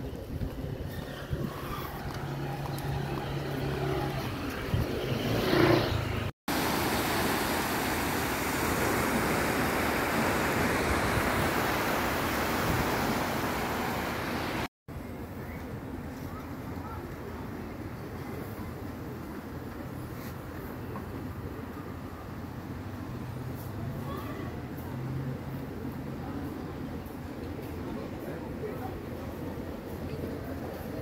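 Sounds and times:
vehicle engine hum: 0.0 - 6.3
surf breaking on a beach: 6.5 - 14.7.

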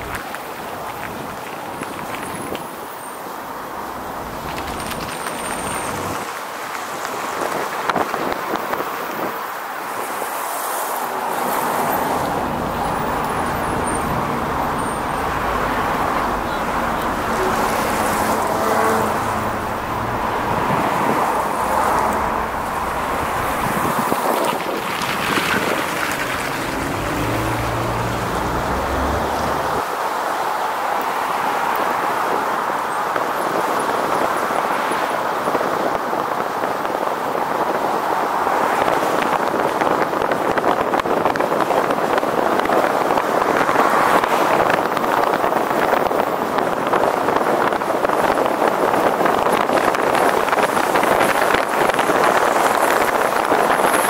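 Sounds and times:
street traffic: 0.0 - 54.0
wind on microphone: 11.0 - 29.9, 32.2 - 54.0.

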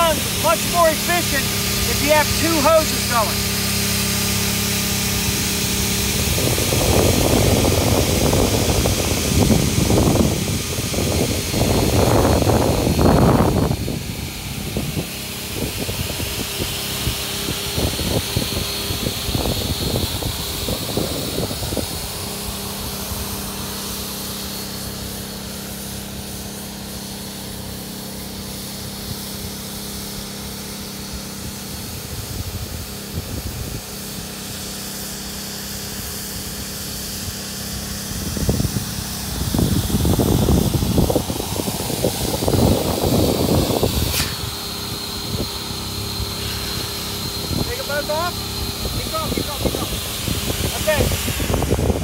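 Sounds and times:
buffeting rumble: 0.0 - 24.1, 38.1 - 52.0
air pump running: 0.0 - 52.0.

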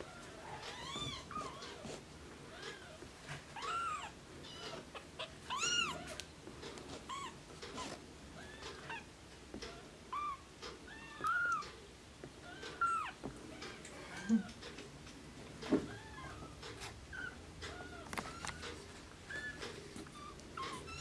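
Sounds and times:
kittens mewing: 0.4 - 6.2, 12.4 - 14.6.

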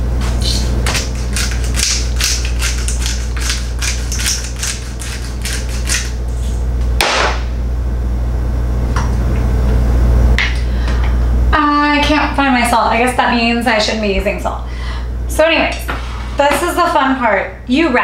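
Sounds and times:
steady low hum: 0.0 - 18.0
pepper mill grinding: 0.3 - 6.6.

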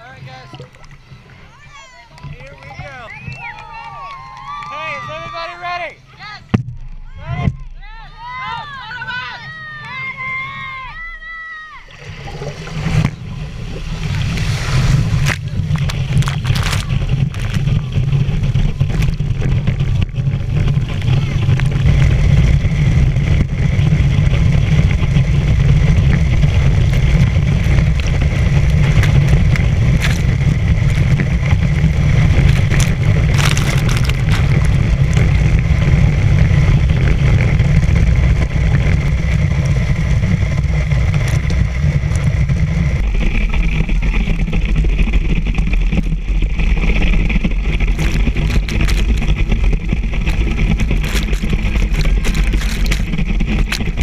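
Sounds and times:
water spray rushing: 11.8 - 54.0
wind on camera: 11.9 - 54.0.

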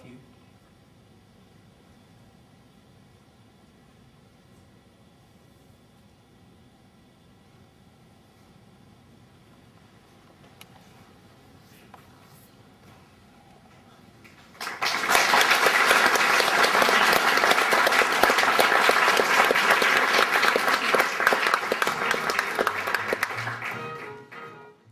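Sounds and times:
audience applauding: 14.2 - 24.8.

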